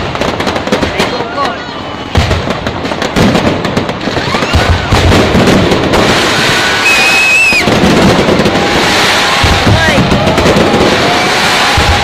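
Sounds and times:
fireworks crackling and banging: 0.0 - 12.0
high firework whistle: 1.4 - 2.5, 4.0 - 5.2, 5.9 - 12.0.

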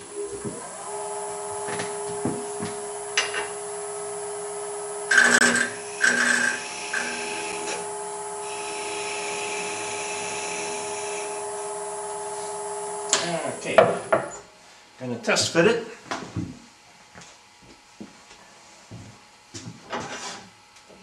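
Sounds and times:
wood lathe humming: 0.0 - 14.4.

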